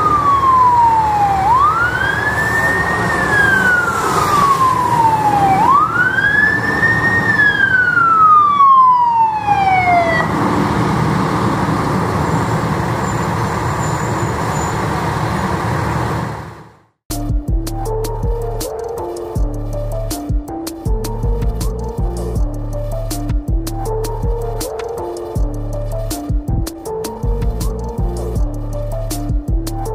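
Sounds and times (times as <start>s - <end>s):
fire truck siren wailing: 0.0s - 16.8s
truck engine and tyres: 0.0s - 29.9s.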